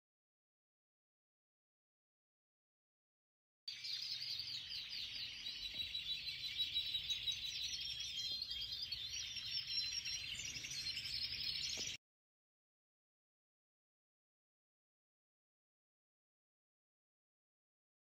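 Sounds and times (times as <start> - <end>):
canaries chirping and trilling: 3.7 - 12.0.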